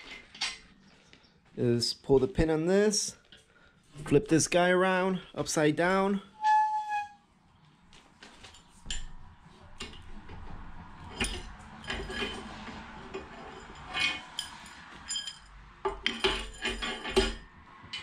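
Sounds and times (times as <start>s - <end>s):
metallic clinks and clanks: 11.0s - 18.0s.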